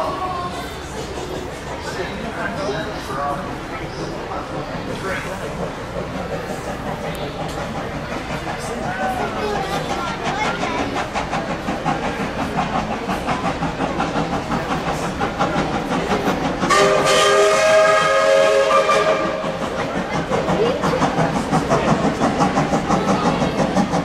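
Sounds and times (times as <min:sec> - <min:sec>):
steam locomotive exhaust beats: 0:00.0 - 0:24.0
steam whistle blast: 0:16.7 - 0:19.4.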